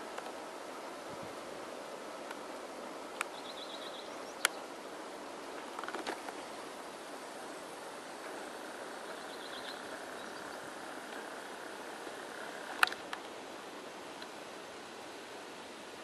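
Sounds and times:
outdoor background hiss: 0.0s - 16.0s
sharp click: 12.8s - 13.3s.

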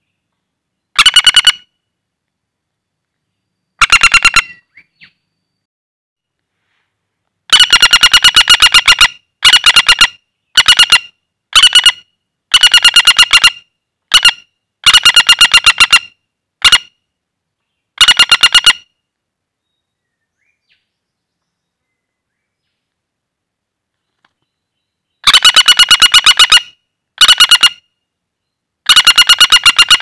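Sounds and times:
woodpecker rattling calls: 1.0s - 1.7s, 3.8s - 5.2s, 7.5s - 16.9s, 18.0s - 18.9s, 25.2s - 27.9s, 28.9s - 30.0s.

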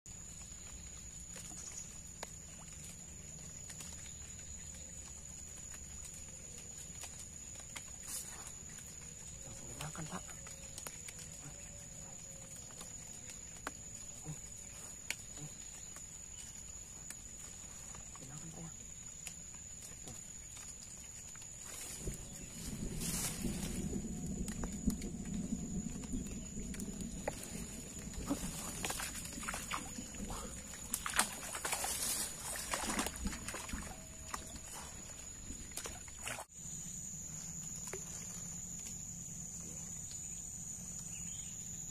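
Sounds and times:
insects droning: 0.1s - 41.9s
fish splashing in water: 27.2s - 36.5s.

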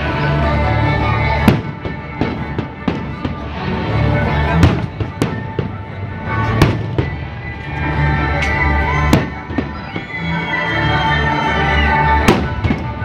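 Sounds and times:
music playing: 0.0s - 13.0s
fireworks bangs: 1.4s - 3.7s, 4.5s - 7.3s, 8.9s - 10.5s, 12.2s - 13.0s.

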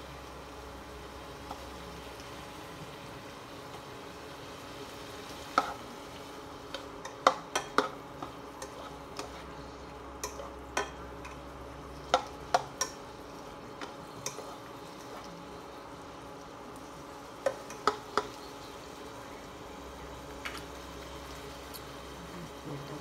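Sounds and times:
food sizzling in oil: 0.0s - 23.0s
spatula tapping and scraping pan: 6.7s - 9.5s, 10.2s - 11.4s, 12.1s - 13.0s, 17.4s - 18.4s.

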